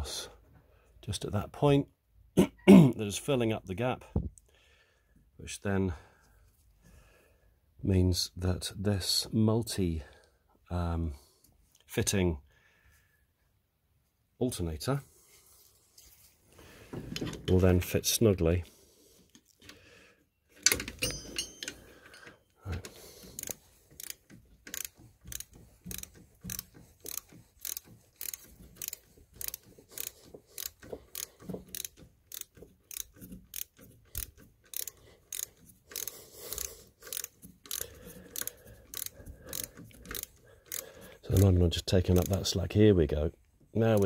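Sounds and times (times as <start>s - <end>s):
socket ratchet clicking: 20.6s - 42.6s.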